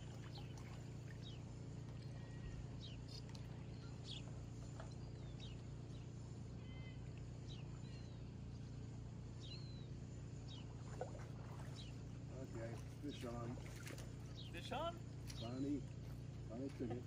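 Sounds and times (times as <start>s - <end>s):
low background rumble: 0.0s - 17.0s
small bird chirping: 0.2s - 16.6s.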